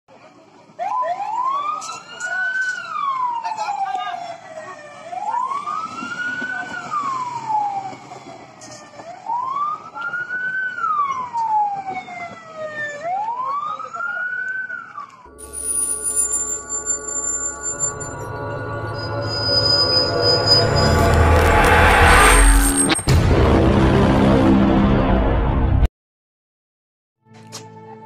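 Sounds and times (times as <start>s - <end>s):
ambulance siren wailing: 0.6s - 22.9s.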